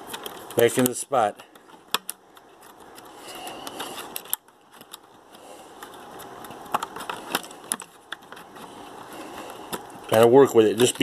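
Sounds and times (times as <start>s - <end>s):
sharp plastic clicks: 0.0s - 8.6s.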